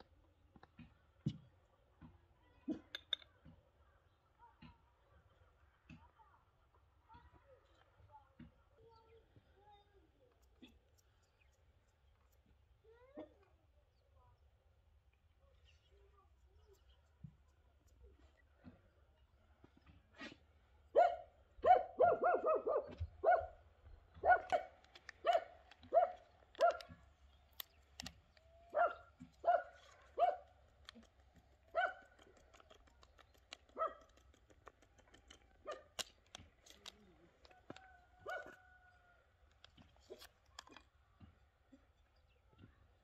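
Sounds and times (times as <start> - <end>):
dog barking: 20.9 - 23.6, 24.2 - 27.0, 28.7 - 30.5, 31.7 - 32.1, 33.8 - 34.1, 38.2 - 38.6.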